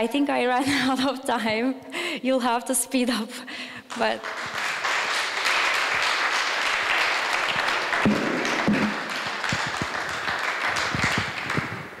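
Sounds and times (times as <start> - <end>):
audience applauding: 3.9 - 12.0.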